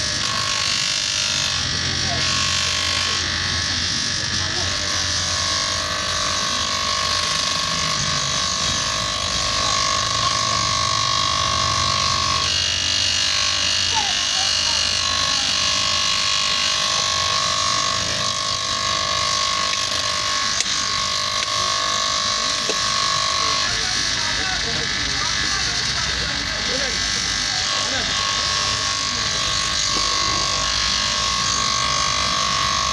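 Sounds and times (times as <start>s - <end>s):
grinder motor whine: 0.0s - 32.9s.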